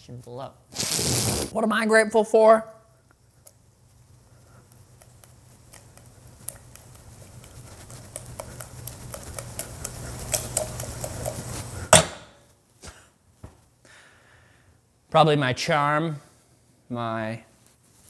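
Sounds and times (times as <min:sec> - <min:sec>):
cranberries crackling in a saucepan: 0:03.1 - 0:12.0.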